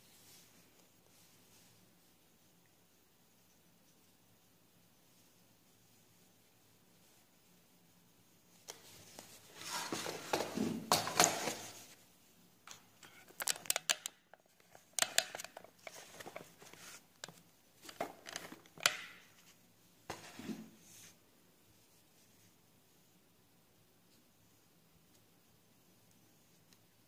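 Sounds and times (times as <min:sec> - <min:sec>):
paper rustling: 0:08.7 - 0:12.0, 0:12.7 - 0:20.7
clicks and taps: 0:12.7 - 0:15.7.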